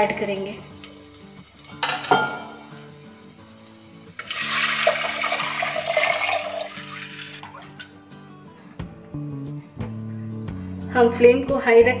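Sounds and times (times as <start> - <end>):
batter pouring into hot oil: 0.0 - 7.7.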